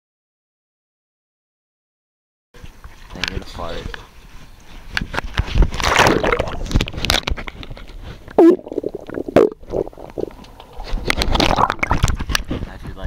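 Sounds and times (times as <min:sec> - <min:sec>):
knocks underwater: 0:05.6 - 0:07.6
air bubbles blurting: 0:05.6 - 0:12.4
underwater water gurgling: 0:05.8 - 0:07.6, 0:08.3 - 0:12.4.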